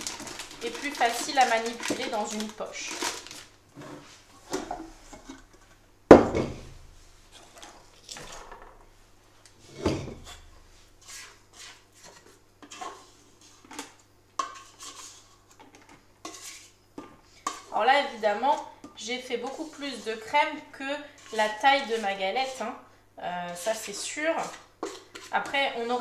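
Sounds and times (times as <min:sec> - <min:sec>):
plastic piping bag rustling: 0:00.0 - 0:03.6.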